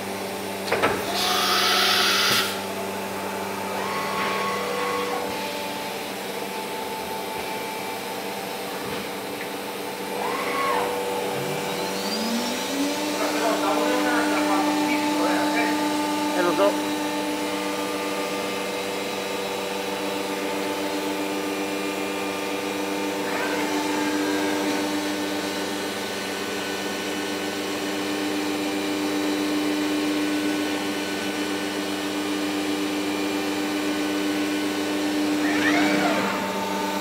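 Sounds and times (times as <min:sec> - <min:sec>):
machine humming: 0:00.0 - 0:37.0.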